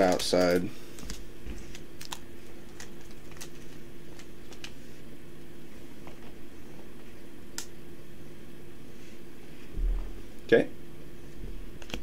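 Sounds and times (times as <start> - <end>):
cards clicking and snapping: 0.0 - 4.8
steady low hum: 0.0 - 12.0.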